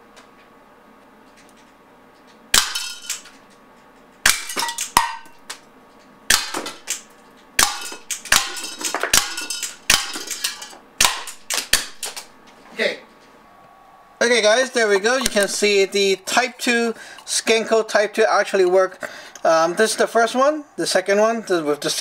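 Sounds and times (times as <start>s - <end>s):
tin cans clinking and clattering: 7.8s - 10.7s.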